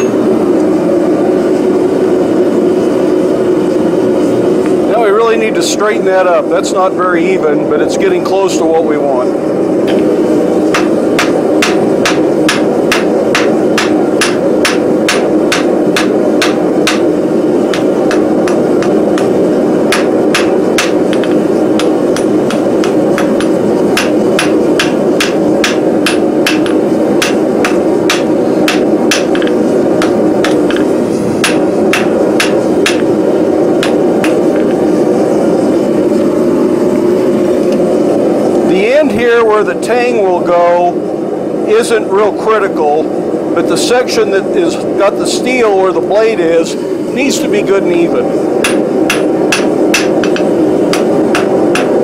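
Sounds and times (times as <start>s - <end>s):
steady rushing noise: 0.2s - 52.0s
hammer striking steel on anvil: 10.8s - 17.1s, 17.7s - 33.2s, 33.8s - 34.6s, 48.6s - 52.0s.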